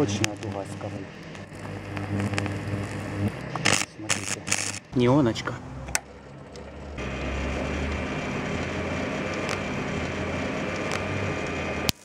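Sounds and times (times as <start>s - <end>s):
mains hum: 0.0s - 5.0s
electric arc buzzing crackle: 0.0s - 5.1s, 5.8s - 12.0s.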